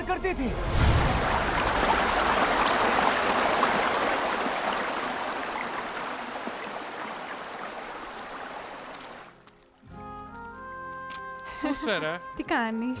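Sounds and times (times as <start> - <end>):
water rushing over rocks: 0.7 - 9.4.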